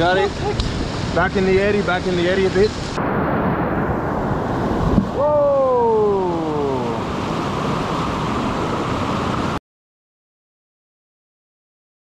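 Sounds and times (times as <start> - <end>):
whitewater rapids rushing: 4.4 - 9.6.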